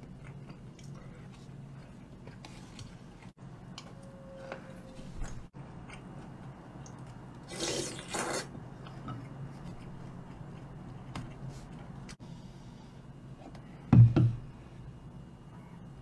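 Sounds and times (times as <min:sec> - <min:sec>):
quiet chewing: 0:00.0 - 0:03.4.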